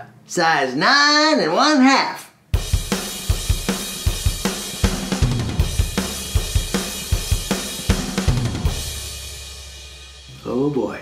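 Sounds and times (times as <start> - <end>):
drum kit beat: 2.5 - 11.0.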